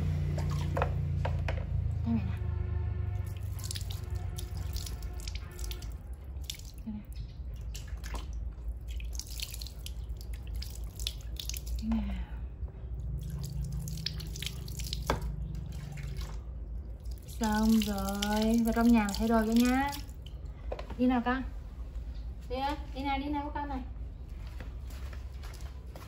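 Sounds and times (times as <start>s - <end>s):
small water splashes: 0.2s - 1.0s, 3.2s - 12.2s, 13.0s - 20.7s
water running and dripping: 3.2s - 12.3s, 12.9s - 20.6s.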